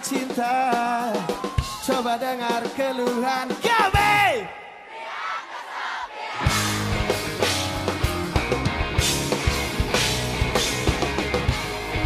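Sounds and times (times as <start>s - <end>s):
live rock band: 0.0s - 4.2s, 6.4s - 12.0s
electric guitar: 6.4s - 12.0s
drum kit hits: 6.5s - 12.0s.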